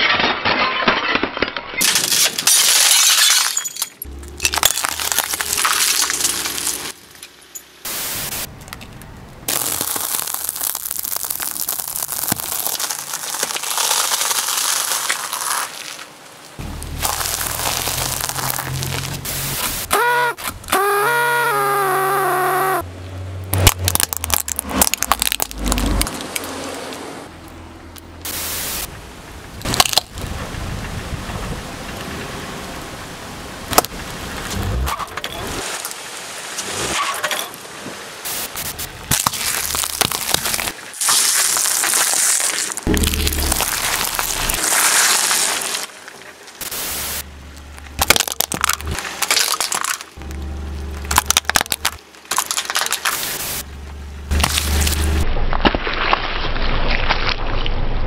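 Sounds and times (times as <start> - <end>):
tyre crushing small objects: 0.0 - 7.4, 8.6 - 20.7, 23.5 - 27.0, 38.6 - 46.6, 47.7 - 53.6, 54.3 - 57.6.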